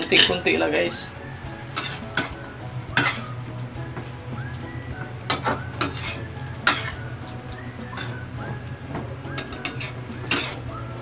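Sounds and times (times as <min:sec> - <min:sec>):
metal spatula scraping a wok: 0:01.4 - 0:03.4, 0:05.3 - 0:07.0, 0:07.8 - 0:08.3, 0:09.3 - 0:10.7.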